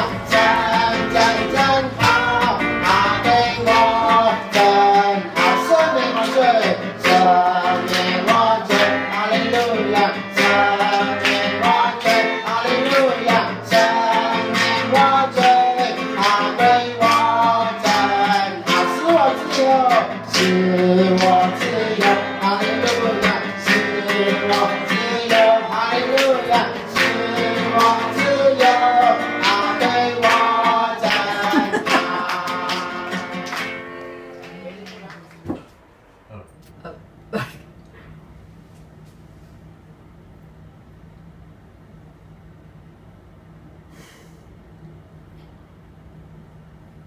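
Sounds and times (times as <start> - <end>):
singing: 0.0 - 33.4
guitar: 0.0 - 38.2.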